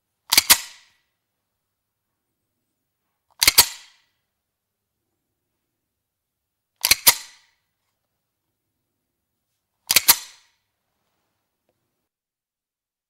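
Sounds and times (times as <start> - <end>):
pistol action clicking: 0.3 - 0.9, 3.4 - 4.0, 6.8 - 7.5, 9.9 - 10.5.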